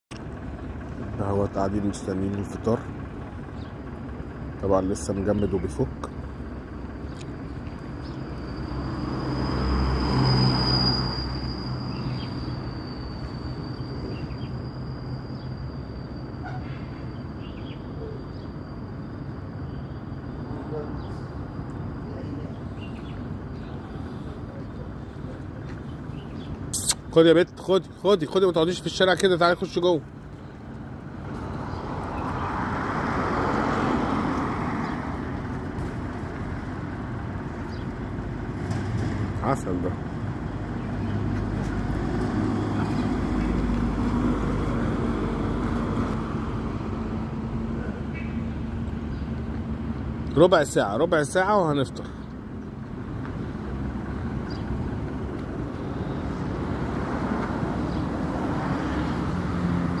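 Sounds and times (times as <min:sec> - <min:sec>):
vehicle passing by: 0:05.0 - 0:13.4, 0:28.8 - 0:50.7, 0:52.9 - 1:00.0.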